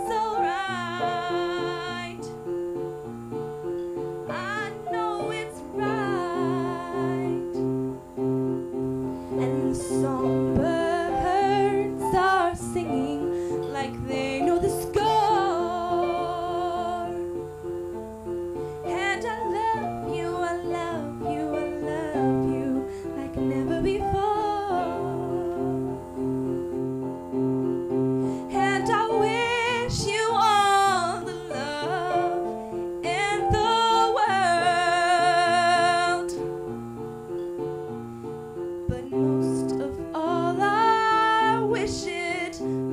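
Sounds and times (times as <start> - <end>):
woman singing: 0.0 - 2.5, 4.2 - 7.7, 9.3 - 17.6, 18.7 - 26.3, 28.4 - 36.6, 38.8 - 42.9
keyboard chords: 0.0 - 42.9.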